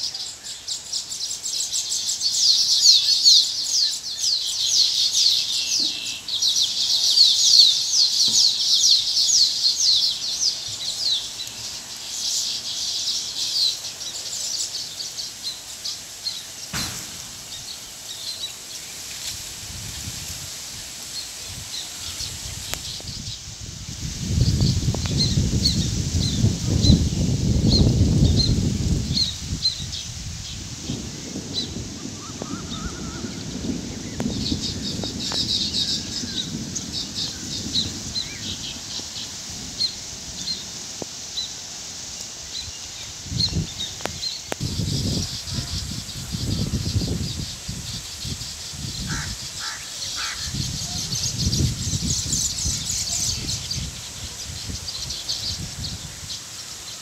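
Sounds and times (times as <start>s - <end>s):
birds chirping: 0.0s - 57.0s
wind rumbling on microphone: 16.3s - 57.0s.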